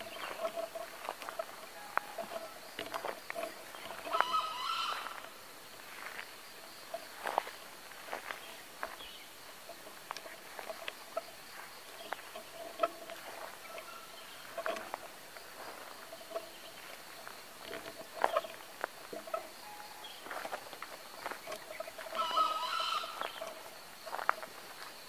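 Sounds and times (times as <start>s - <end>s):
clicks and rustles in grass: 0.0s - 25.0s
faint pulsing chirp: 0.0s - 25.0s
jungle fowl call: 1.6s - 3.1s, 3.9s - 5.4s, 19.2s - 20.1s, 21.7s - 24.2s.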